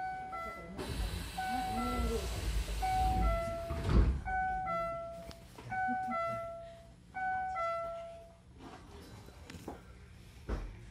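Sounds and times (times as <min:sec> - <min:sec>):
two-tone train door chime: 0:00.0 - 0:08.4
sliding doors shutting thump: 0:02.3 - 0:04.3.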